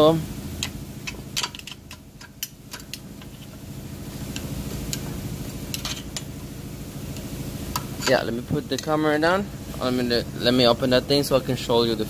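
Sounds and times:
low hum: 0.0 - 12.0
metal engine parts clicking: 0.6 - 3.6, 5.7 - 6.4.

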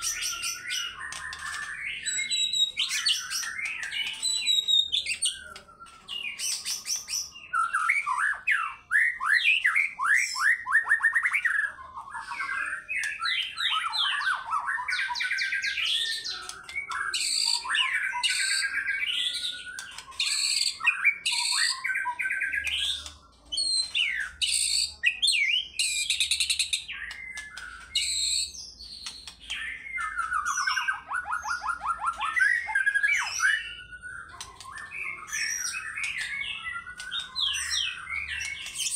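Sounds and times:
songbird trills and whistles: 0.0 - 38.9.

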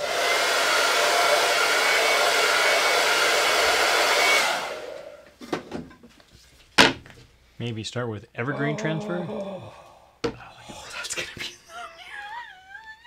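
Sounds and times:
hot-air dryer blowing with whine: 0.0 - 5.2.

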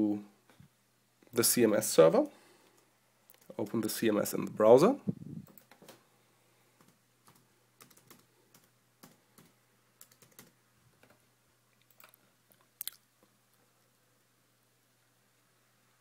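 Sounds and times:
keyboard typing: 6.8 - 10.6.

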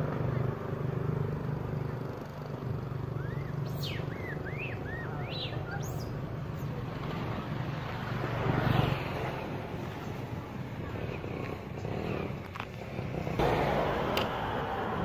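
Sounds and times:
high chirping calls: 3.0 - 6.8
low motor hum: 10.2 - 15.0.

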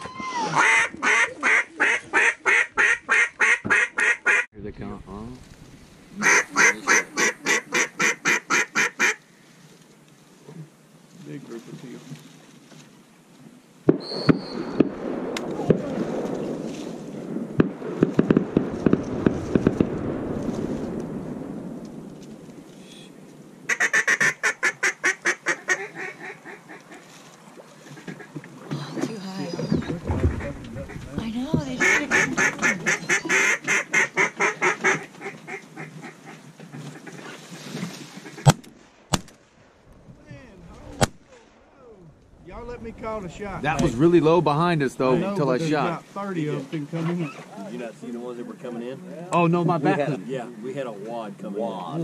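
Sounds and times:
duck quacking rapidly: 0.5 - 4.5, 6.2 - 9.2, 31.8 - 36.2.

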